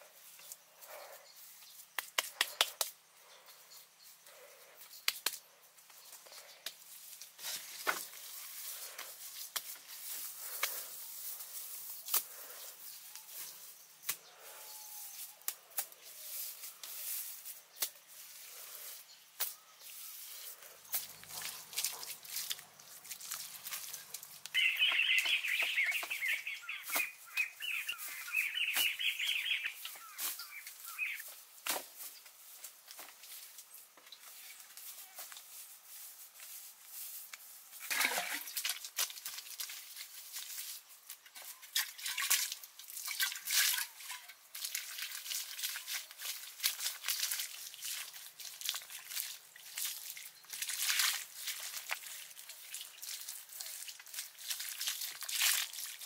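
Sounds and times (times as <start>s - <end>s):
bird chattering: 24.6s - 31.2s.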